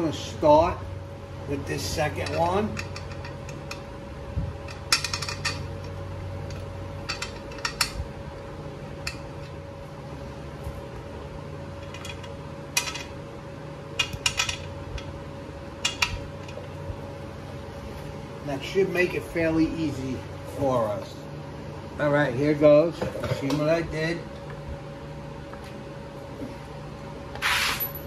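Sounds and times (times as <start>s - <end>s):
steady hum: 0.0s - 28.0s.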